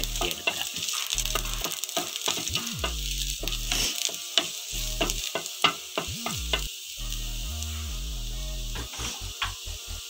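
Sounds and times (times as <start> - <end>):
spatula scraping pan: 0.0 - 6.7, 8.8 - 9.6
sizzling in a frying pan: 0.0 - 10.0.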